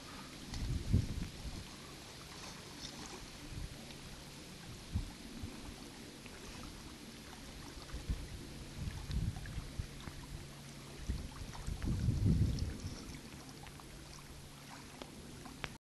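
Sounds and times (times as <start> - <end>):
wind buffeting microphone: 0.0 - 1.9, 4.6 - 5.8, 7.6 - 13.3.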